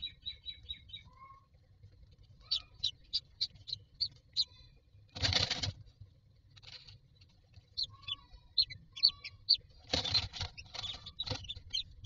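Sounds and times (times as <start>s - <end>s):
nestlings begging cheeps: 0.0s - 5.0s, 7.5s - 12.0s.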